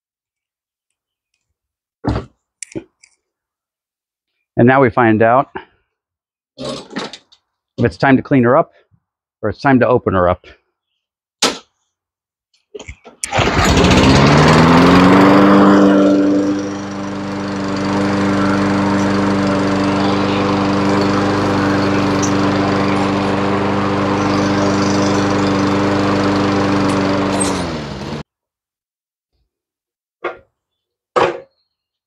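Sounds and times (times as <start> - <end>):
lawn mower engine running: 13.2 - 28.2.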